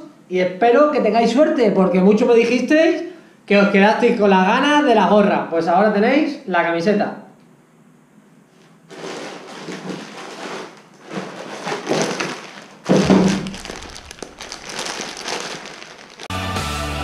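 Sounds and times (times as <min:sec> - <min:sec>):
handling rustling and crinkling: 0:08.6 - 0:16.3
knocks and thump: 0:11.8 - 0:14.8.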